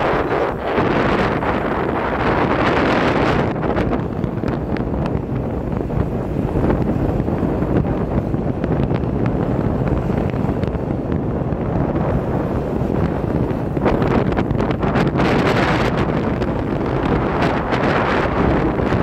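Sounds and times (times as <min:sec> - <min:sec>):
city traffic: 0:00.0 - 0:19.0
wind noise on microphone: 0:00.0 - 0:19.0.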